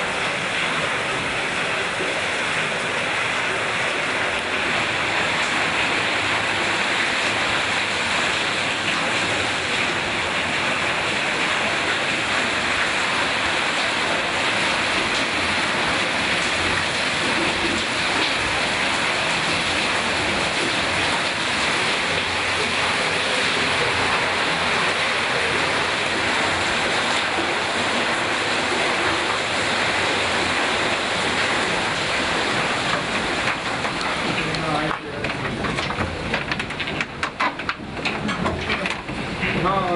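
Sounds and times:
water rushing over waterwheel: 0.0s - 39.9s.

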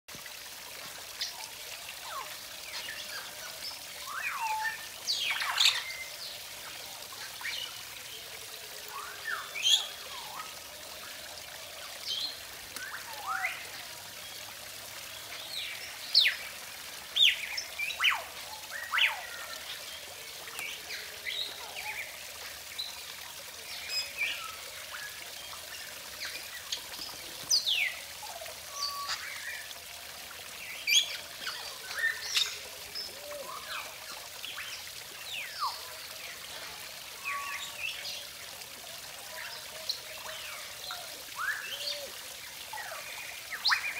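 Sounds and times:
water trickling down rocks: 0.1s - 43.9s.

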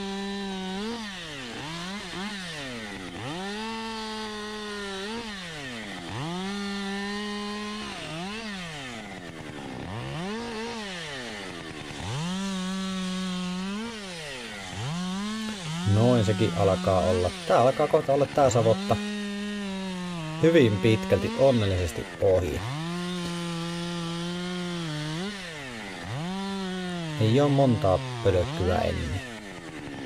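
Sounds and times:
chainsaw cutting wood: 0.0s - 30.0s.

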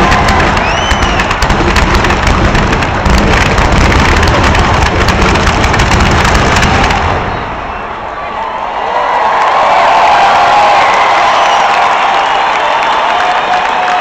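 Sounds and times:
firework whistle: 0.0s - 2.4s, 6.2s - 8.4s
fireworks bangs and crackling: 0.0s - 8.1s.

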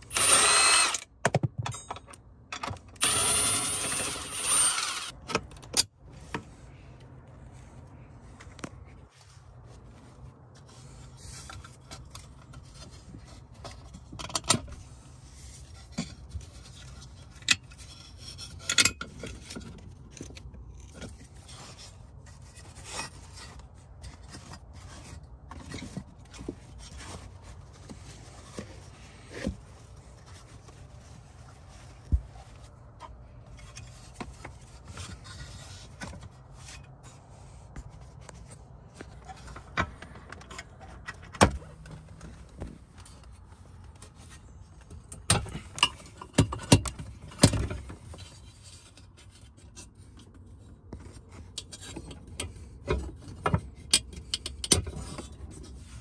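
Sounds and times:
insulation padding rustling: 6.0s - 17.2s, 19.3s - 46.2s.

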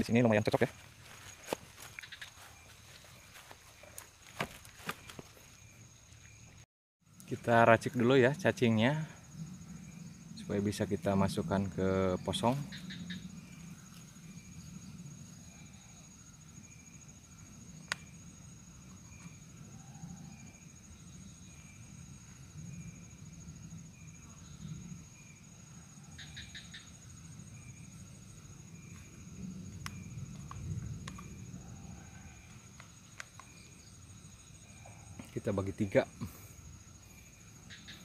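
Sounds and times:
insect chirping: 0.0s - 38.0s
high-pitched insect drone: 4.8s - 38.0s.

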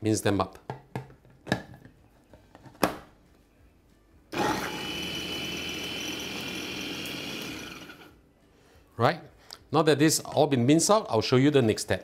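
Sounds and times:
food chopper motor whining: 4.3s - 8.2s.

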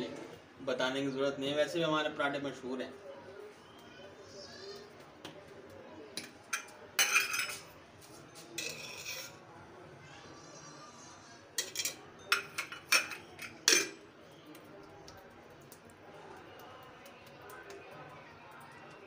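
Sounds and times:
metal kitchenware clinking: 6.2s - 7.7s, 8.6s - 9.4s, 11.6s - 14.1s.

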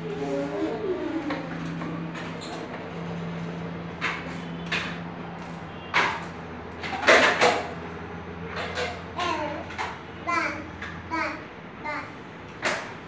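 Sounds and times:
plastic tricycle rattling and scraping: 0.0s - 7.8s.

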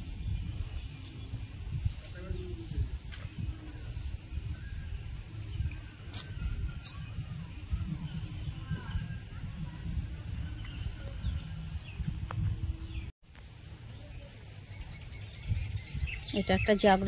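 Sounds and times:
low rumble on microphone: 0.0s - 17.0s.

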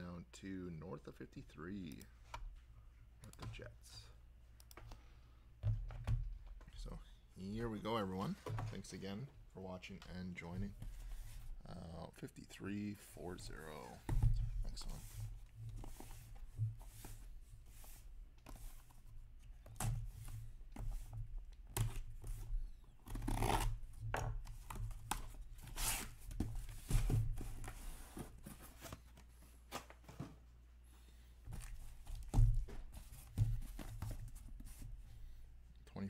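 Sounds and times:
boxes being handled: 12.9s - 30.6s.

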